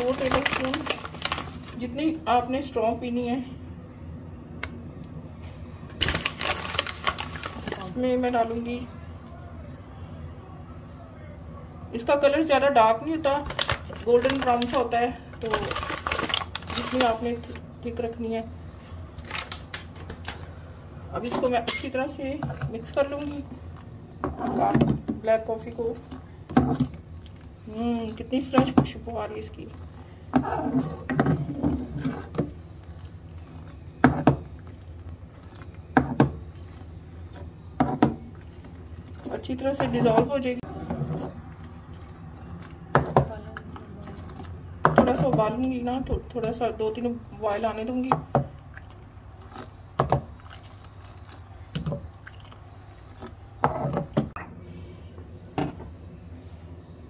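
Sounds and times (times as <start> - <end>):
coffee boiling in a pot: 0.0 - 2.8, 11.6 - 57.0
steady low hum: 0.0 - 57.0
liquid pouring and splashing: 48.3 - 54.2.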